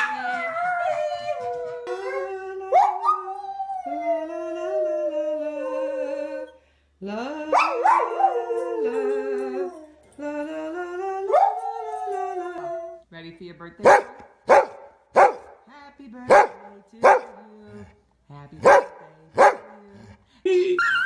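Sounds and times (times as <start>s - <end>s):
dog howling: 0.0s - 6.6s, 7.4s - 13.0s.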